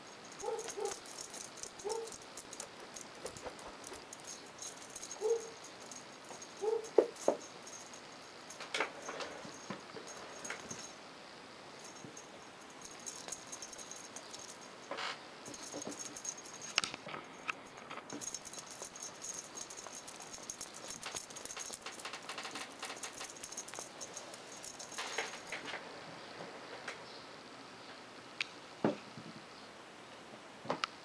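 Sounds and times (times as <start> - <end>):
small object rattling: 0.0 - 10.9, 11.8 - 25.7.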